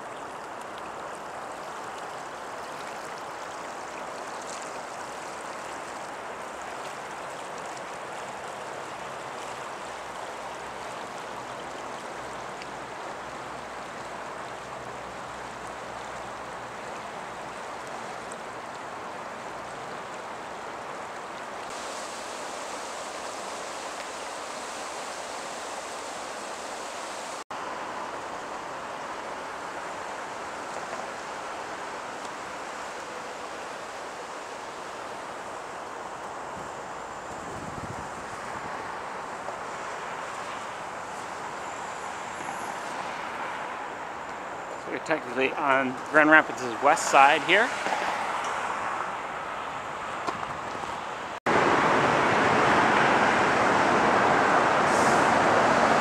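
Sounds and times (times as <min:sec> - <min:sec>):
river water churning through rapids: 0:00.0 - 0:56.0.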